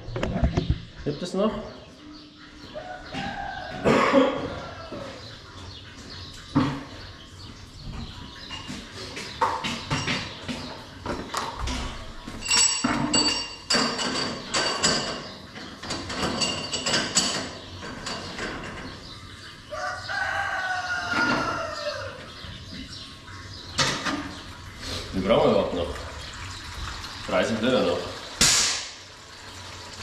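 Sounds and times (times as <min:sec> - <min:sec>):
knocks and metallic clanks: 0:06.0 - 0:19.4, 0:23.7 - 0:24.6.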